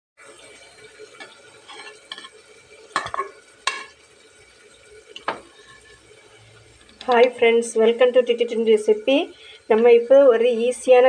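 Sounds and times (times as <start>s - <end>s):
metal knocking against pot: 1.2s - 4.0s, 5.2s - 6.0s
metal ladle clinking in pot: 1.2s - 4.0s, 5.2s - 6.0s.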